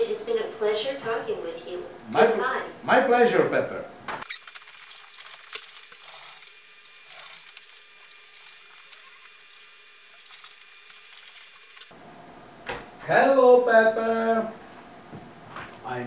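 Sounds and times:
robot motors whirring: 4.2 - 11.9.

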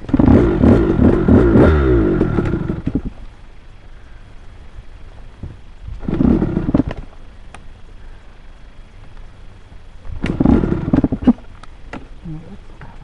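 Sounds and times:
dirt bike engine revving: 0.0 - 3.1, 6.0 - 7.0, 10.2 - 11.3.

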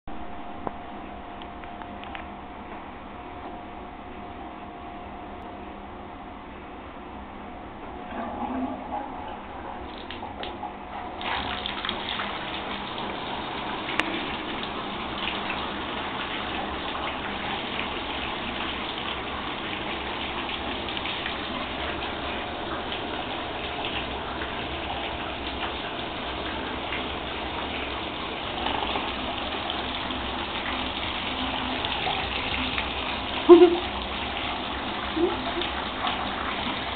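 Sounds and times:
tap water gushing into tub: 8.2 - 36.9.

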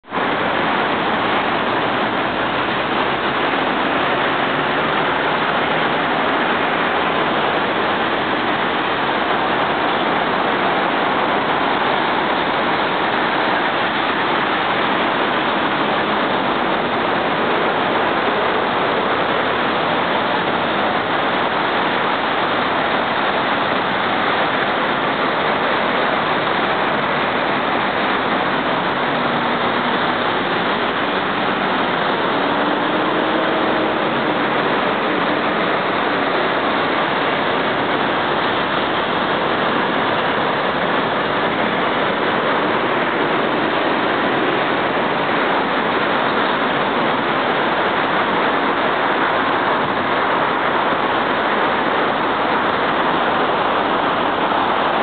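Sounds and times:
dense road traffic: 0.0 - 55.0.

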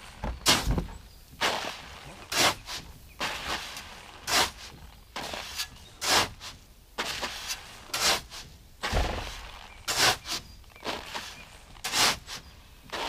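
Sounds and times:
soft rustles of granules: 0.0 - 13.0
shovel scraping granules: 1.4 - 13.0
dull thump: 8.8 - 10.0.

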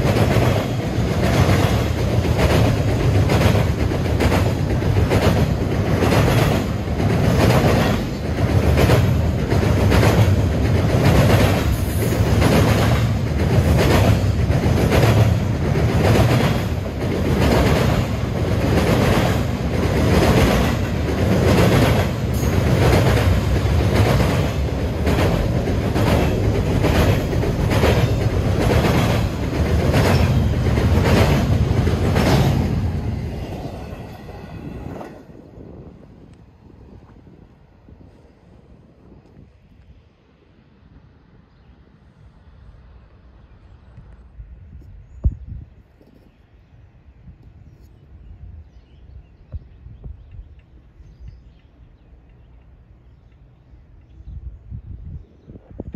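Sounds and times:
clickety-clack over rail joints: 0.0 - 35.4
train wheels rumbling on rail: 0.0 - 40.6.

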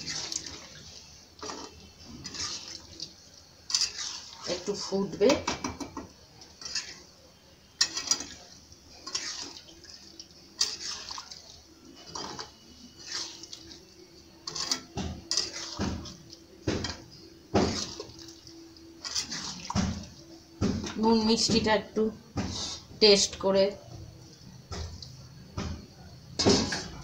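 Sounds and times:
gravy sloshing: 0.0 - 5.4, 6.2 - 23.0
metal spatula scraping pan: 1.4 - 2.8, 3.6 - 5.3, 6.5 - 7.1, 7.7 - 9.6, 10.6 - 11.1, 11.9 - 13.5, 14.4 - 15.8, 19.0 - 19.6.

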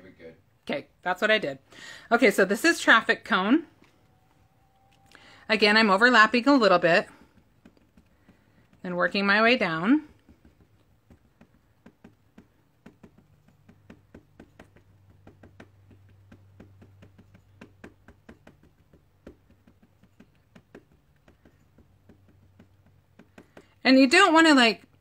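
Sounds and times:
low steady hum: 0.0 - 25.0
ink pad tapping on stamp: 6.0 - 24.9.

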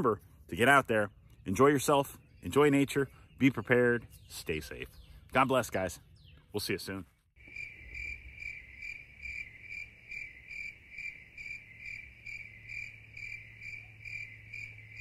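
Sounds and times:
high-pitched cricket-like chirping: 7.4 - 15.0.

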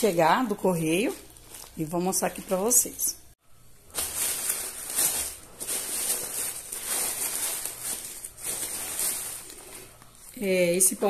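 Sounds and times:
plastic bag rustling: 0.0 - 2.8, 3.8 - 11.0.

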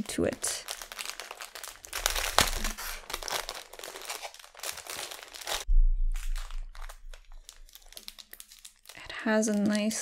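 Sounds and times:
plastic bag crinkling: 0.0 - 10.0
dull low thump: 5.7 - 7.9.

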